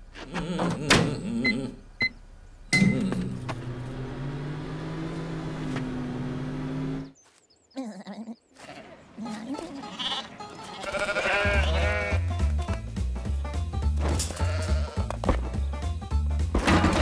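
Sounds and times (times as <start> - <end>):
cartoon sheep bleating: 8.6 - 12.3, 14.4 - 15.1.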